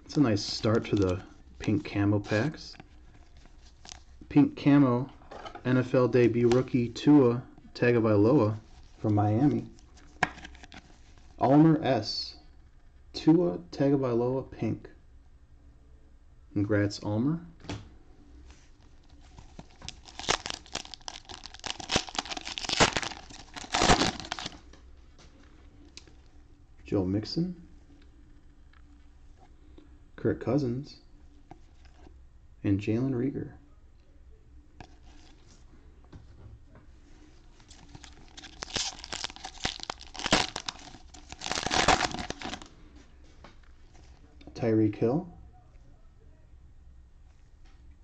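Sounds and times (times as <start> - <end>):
cellophane wrapper tearing and crinkling: 19.0 - 24.6, 37.6 - 42.7.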